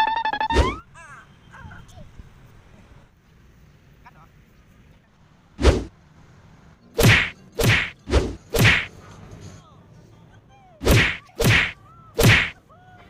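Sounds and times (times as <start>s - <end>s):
swishing punch whacks: 5.6s - 5.9s, 7.0s - 8.9s, 10.8s - 12.6s.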